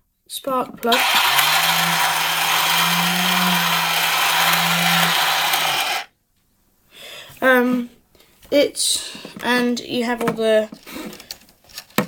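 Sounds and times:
low electric motor hum: 0.9 - 6.1
mechanical whir: 0.9 - 6.1.

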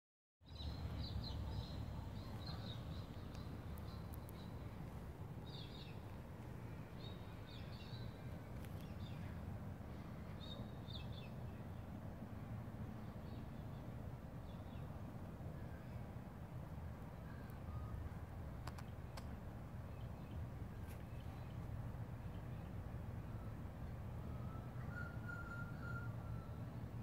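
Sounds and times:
bird chirping: 0.5 - 6.1, 6.7 - 12.0.

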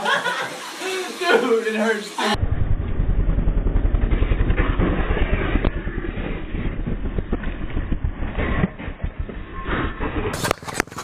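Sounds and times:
crash knock: 2.4 - 9.2
motorcycle engine rumbling: 2.4 - 10.3.

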